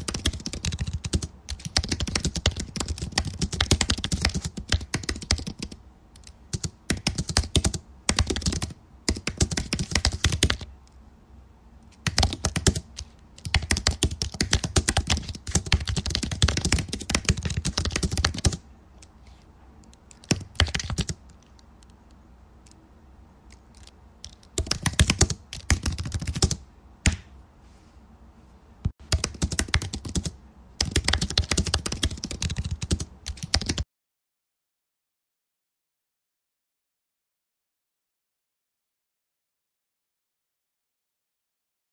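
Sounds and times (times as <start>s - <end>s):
computer keyboard typing: 0.0s - 10.7s, 12.0s - 19.1s, 19.8s - 22.0s, 23.5s - 27.2s, 29.0s - 33.8s.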